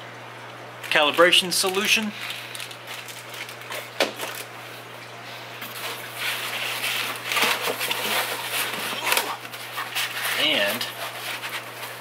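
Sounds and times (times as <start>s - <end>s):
foam and cardboard rustling: 5.6s - 12.0s.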